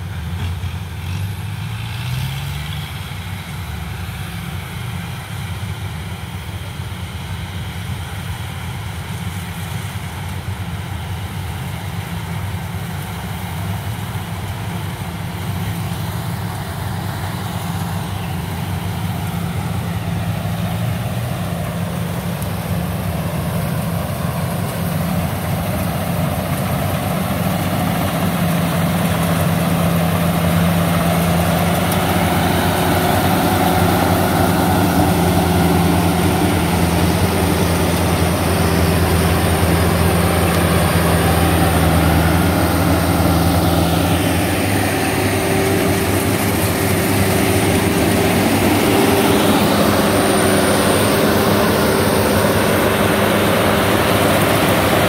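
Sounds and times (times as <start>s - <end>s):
combine harvester engine running: 0.0s - 55.0s
machinery whirring: 14.6s - 55.0s.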